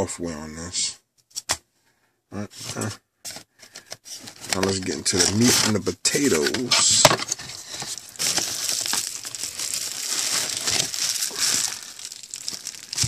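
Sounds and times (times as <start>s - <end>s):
bubble wrap crinkling: 4.2s - 13.0s.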